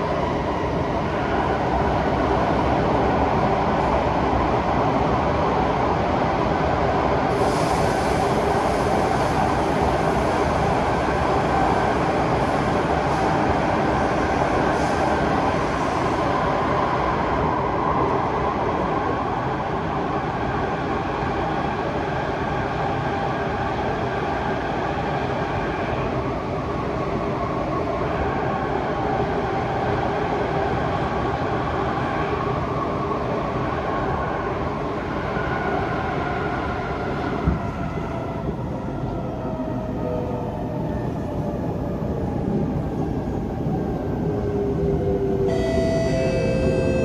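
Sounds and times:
train motor whine: 45.5 - 47.0.

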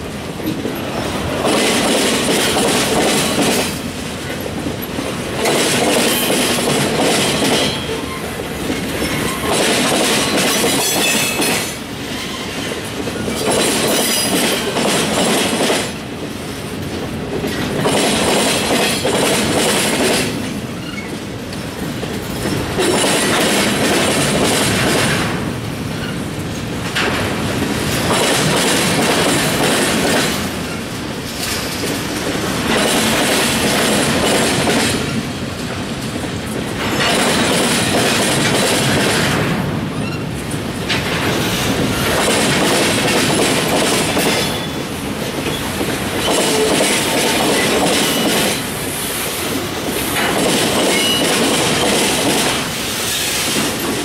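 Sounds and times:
wheels clicking over rail joints: 26.0 - 48.8, 49.8 - 54.0.

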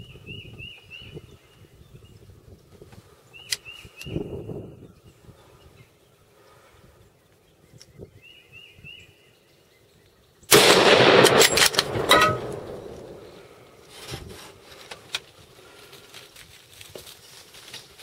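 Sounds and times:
loud gunshot with echo: 10.5 - 13.4.

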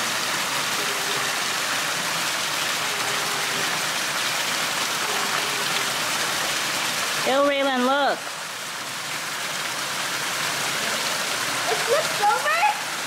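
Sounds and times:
water hissing: 0.0 - 7.7.

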